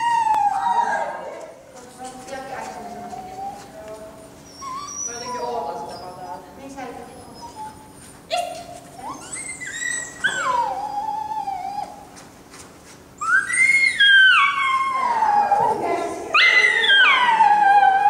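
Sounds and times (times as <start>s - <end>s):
dog howling: 0.0s - 1.5s, 9.0s - 12.1s, 13.2s - 18.0s.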